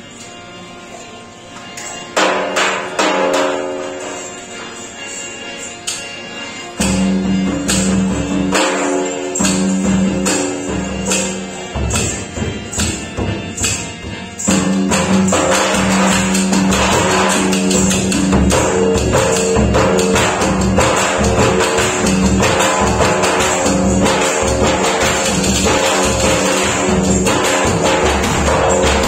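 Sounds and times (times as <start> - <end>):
drum beaten with a stick: 2.2 - 4.2, 6.8 - 29.0
folk dance music with drum: 6.1 - 29.0.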